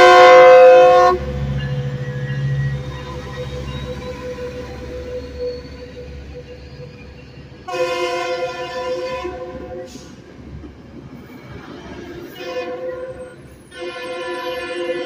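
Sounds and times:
train horn chord: 0.0 - 1.9, 7.7 - 10.0, 12.3 - 15.0
train coaches rumbling: 0.0 - 15.0.

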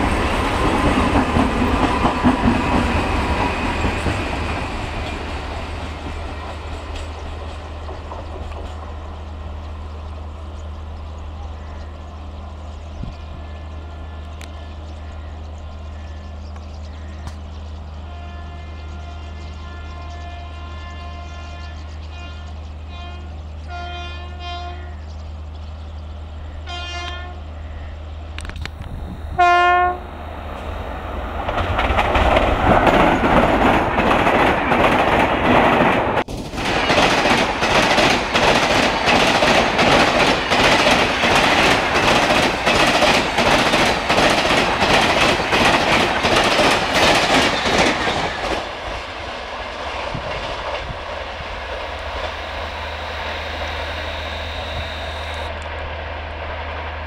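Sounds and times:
train wheels clickety-clack: 0.0 - 10.2, 31.3 - 52.3
locomotive horn: 18.0 - 25.0, 26.7 - 27.5, 28.8 - 30.2, 52.0 - 55.6.

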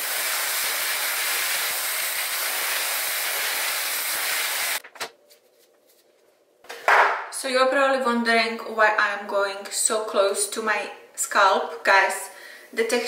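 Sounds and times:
hair dryer blowing: 0.0 - 4.8.

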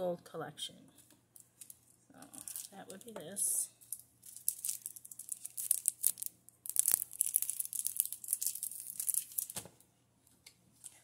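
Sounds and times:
packaging wrapper tearing and crinkling: 1.5 - 2.8, 3.8 - 9.6.

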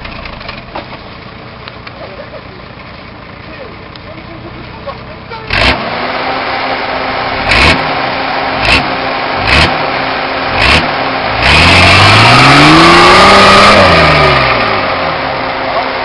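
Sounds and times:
diesel truck engine revving: 4.8 - 16.0.

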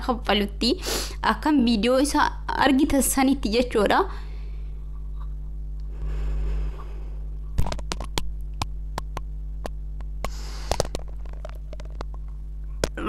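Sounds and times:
electrical mains hum: 0.0 - 13.0
person sniffing: 0.8 - 1.2, 10.3 - 10.9
microphone handling clicks and rubbing: 7.5 - 13.0.

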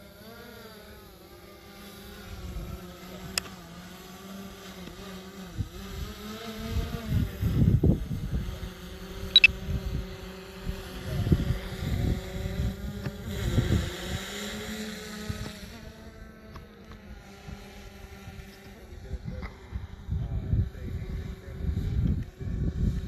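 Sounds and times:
drone propellers humming: 0.0 - 23.0
wind buffeting the microphone: 5.5 - 14.2, 17.4 - 23.0.

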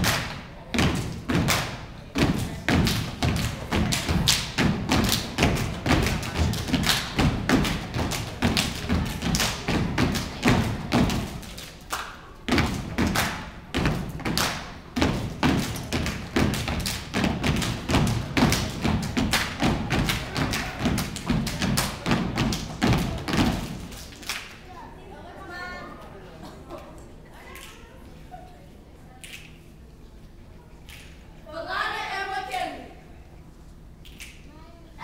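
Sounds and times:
hand claps: 0.0 - 0.4, 1.0 - 1.8, 2.4 - 24.6, 30.8 - 31.2, 34.0 - 34.4.

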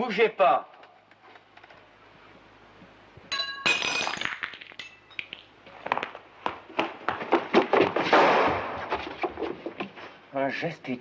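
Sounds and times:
glass crash and clink: 3.3 - 5.3.

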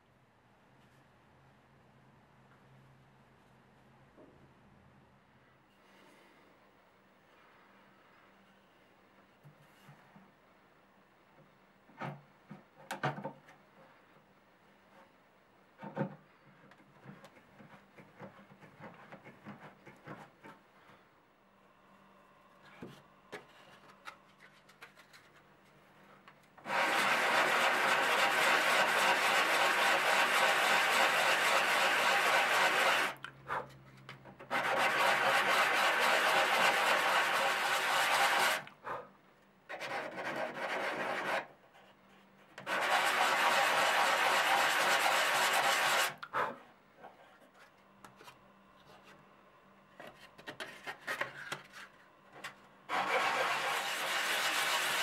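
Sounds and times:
wooden blank being scraped by hand: 26.7 - 33.2, 34.5 - 38.6, 39.7 - 41.9, 42.6 - 46.2, 52.9 - 55.0.

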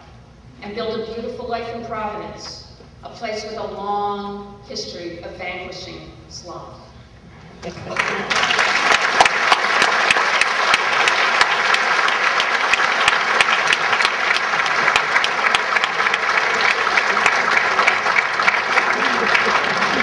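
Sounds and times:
audience applauding: 7.9 - 20.0.

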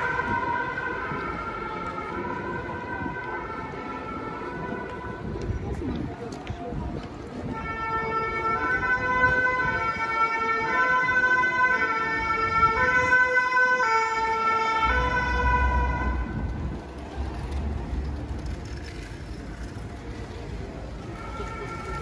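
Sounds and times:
two-tone fire engine siren: 0.0 - 5.5, 7.3 - 16.8, 21.0 - 22.0.

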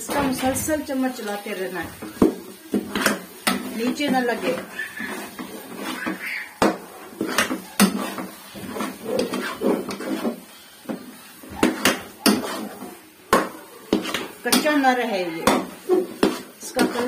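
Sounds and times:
metal spoon scraping a pan: 0.0 - 17.0
spoon knocking on pan: 5.3 - 8.4, 11.6 - 12.7, 13.3 - 14.8, 15.4 - 17.0.

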